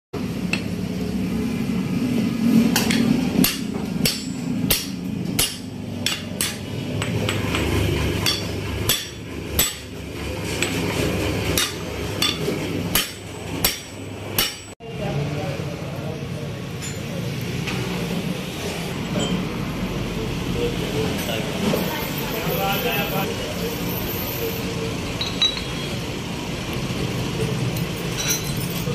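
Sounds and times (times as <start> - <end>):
hammer striking steel: 2.7 - 10.9, 11.5 - 14.8.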